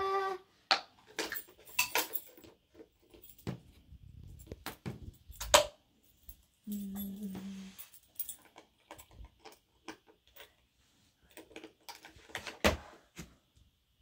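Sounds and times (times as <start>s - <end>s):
small toys clicking and knocking: 0.7s - 3.5s, 8.2s - 10.6s, 11.3s - 12.6s.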